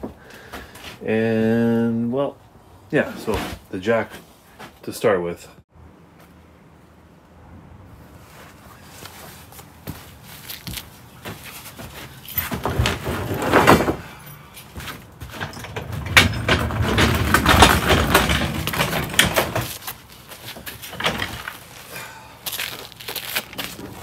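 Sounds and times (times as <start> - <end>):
heavy footsteps: 8.2 - 13.1
jack wheels rumbling on boards: 11.9 - 19.8.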